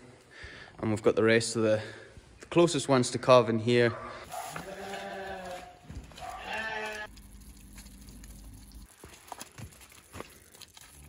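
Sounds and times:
footsteps in wet mud: 4.3 - 11.0
calf bleating: 4.4 - 7.1.

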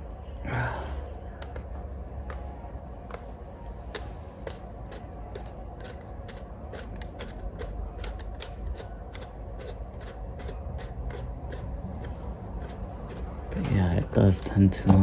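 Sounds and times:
low steady hum: 0.0 - 15.0
oil filter wrench clicking: 5.8 - 10.5.

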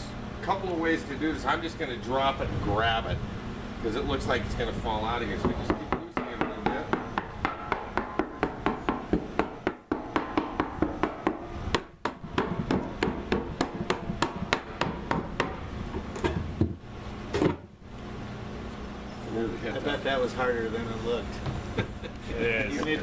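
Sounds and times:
hammer tapping on wooden barrel: 5.4 - 15.6.

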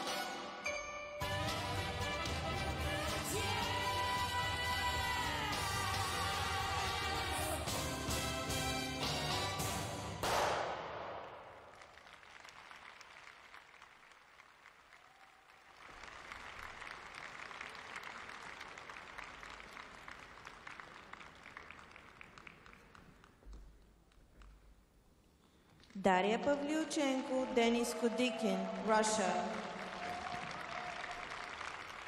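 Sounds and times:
crowd applauding: 11.5 - 23.5, 27.3 - 32.0.

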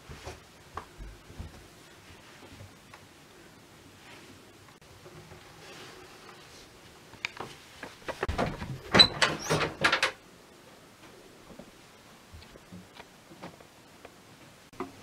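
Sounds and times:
door squeak: 8.3 - 10.1.

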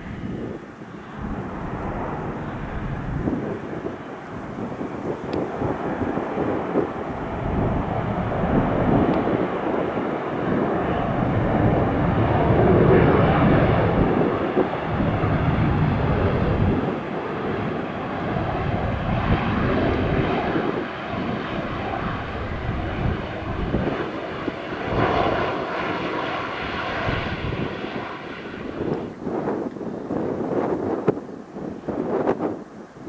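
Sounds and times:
faint engine whine: 0.0 - 29.2
airliner engines rumbling: 0.0 - 33.0.

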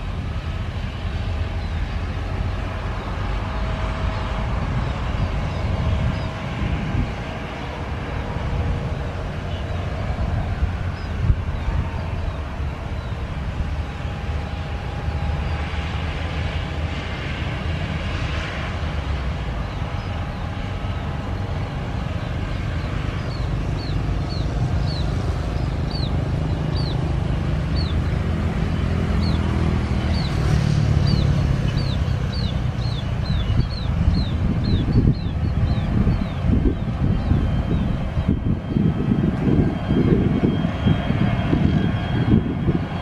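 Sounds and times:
jet engines rumbling: 0.0 - 43.0
motorcycles passing: 19.6 - 36.8
bird chirping: 22.8 - 27.1, 27.7 - 28.1, 29.1 - 37.9.

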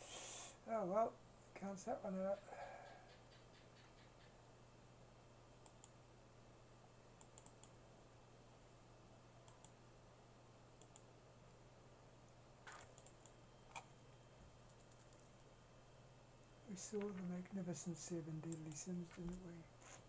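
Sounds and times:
low steady hum: 0.0 - 20.0
faint clicks: 5.6 - 6.0, 7.2 - 7.8, 9.4 - 9.8, 10.8 - 11.1, 12.7 - 13.9.

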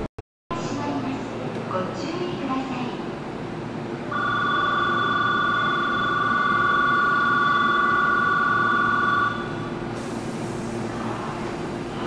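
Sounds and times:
two-tone platform bell ringing: 4.1 - 9.4.

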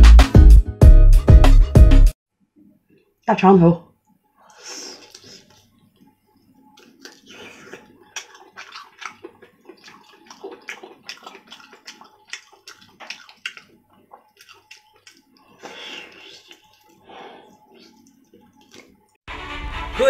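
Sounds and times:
wet chewing and sucking: 4.5 - 19.2.

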